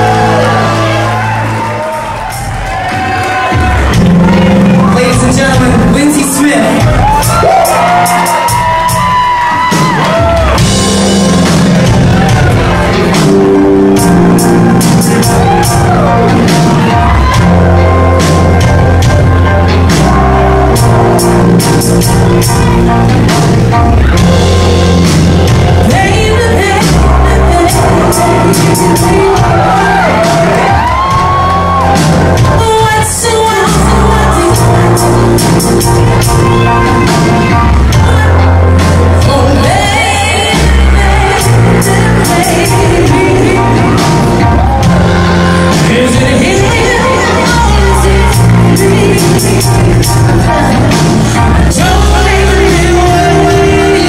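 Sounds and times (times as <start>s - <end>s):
bass line: 0.0s - 54.0s
drums: 0.0s - 54.0s
keyboards: 0.0s - 54.0s
woman singing lead: 25.7s - 54.0s.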